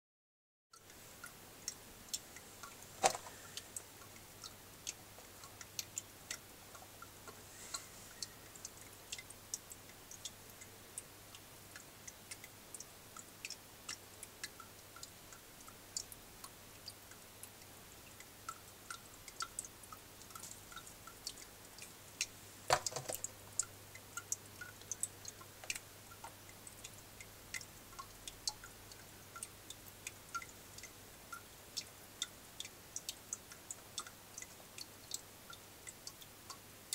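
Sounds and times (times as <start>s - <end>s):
chameleon chewing crunchy clicks: 2.6s - 7.9s.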